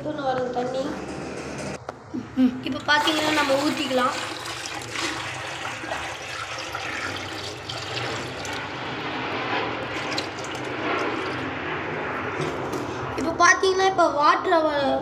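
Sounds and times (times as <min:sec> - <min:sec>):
water pouring into plastic crate: 0:03.0 - 0:08.7, 0:09.9 - 0:11.4.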